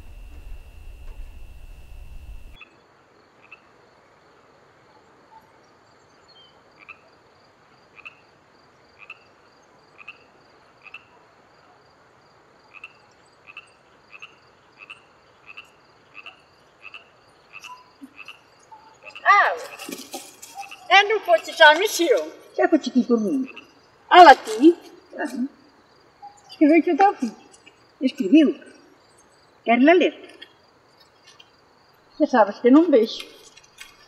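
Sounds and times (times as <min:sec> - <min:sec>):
low hum: 0:00.0 - 0:02.6
small animal chirping: 0:12.8 - 0:25.5.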